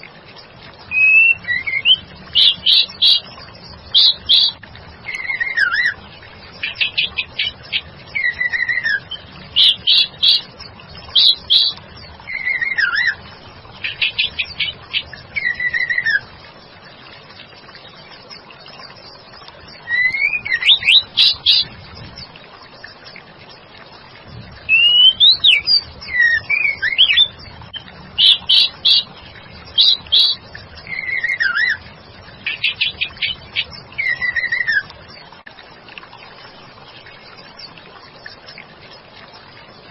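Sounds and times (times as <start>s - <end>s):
steady background noise: 0.0s - 39.9s
bird calling with ticks and whistles: 0.8s - 6.0s, 6.6s - 16.3s, 17.7s - 23.2s, 24.6s - 35.2s.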